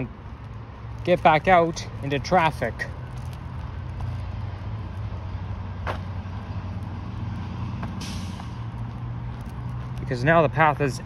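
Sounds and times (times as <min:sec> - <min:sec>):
road traffic rumble: 0:00.0 - 0:11.0
short hiss: 0:08.0 - 0:08.6.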